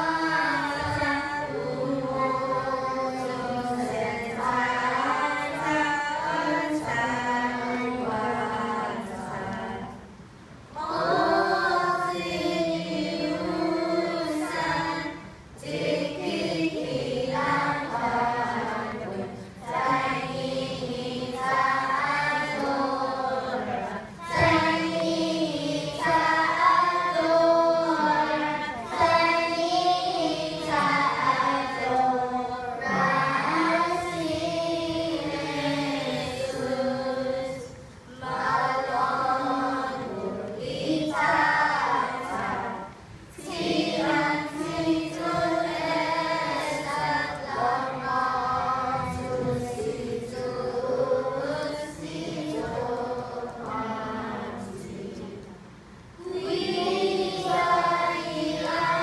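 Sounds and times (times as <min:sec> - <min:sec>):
children's choir singing: 0:00.0 - 0:59.0.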